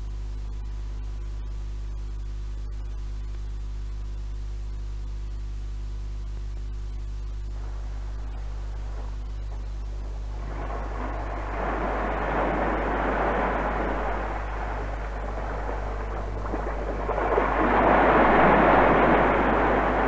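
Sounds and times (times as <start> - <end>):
low tape hum: 0.0 - 20.0
rushing wind-like noise: 7.5 - 20.0.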